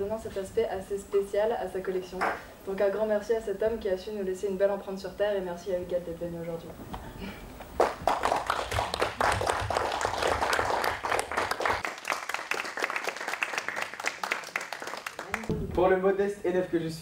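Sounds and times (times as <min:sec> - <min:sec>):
small audience applauding: 0:07.8 - 0:15.6.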